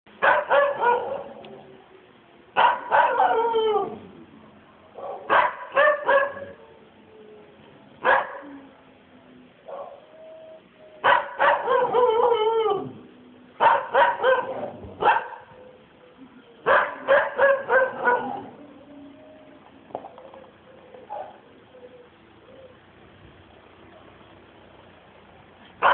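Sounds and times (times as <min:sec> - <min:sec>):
dogs barking and yelping: 0:00.2 - 0:01.7, 0:02.6 - 0:04.2, 0:05.0 - 0:06.7, 0:08.0 - 0:08.7, 0:09.6 - 0:10.2, 0:11.0 - 0:15.7, 0:16.6 - 0:22.2.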